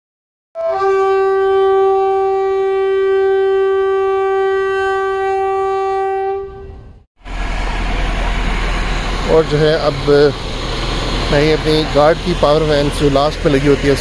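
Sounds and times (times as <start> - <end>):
long horn-like note: 0.6 - 9.6.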